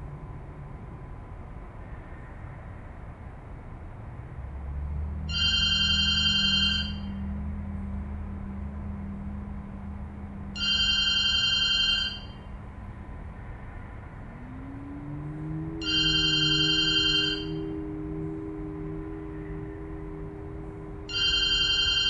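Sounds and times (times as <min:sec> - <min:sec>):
low steady hum: 0:00.0 - 0:22.0
telephone ringing: 0:05.3 - 0:07.1, 0:10.6 - 0:12.4, 0:15.8 - 0:17.6, 0:21.1 - 0:22.0.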